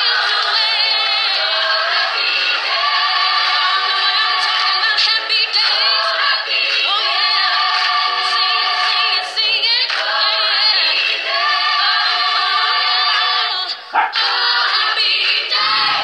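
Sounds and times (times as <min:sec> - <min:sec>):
woman singing mock-operatically: 0:00.0 - 0:16.0
small dog barking: 0:13.9 - 0:14.2.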